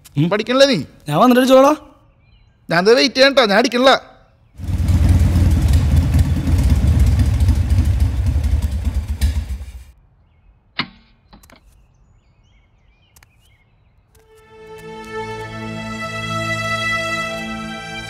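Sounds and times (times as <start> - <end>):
motorcycle engine running: 4.6 - 9.9.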